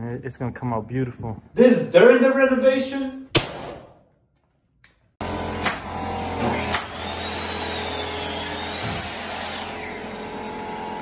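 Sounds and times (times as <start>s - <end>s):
nail gun shots: 3.3s - 4.0s, 5.6s - 7.0s
air compressor running: 5.2s - 11.0s.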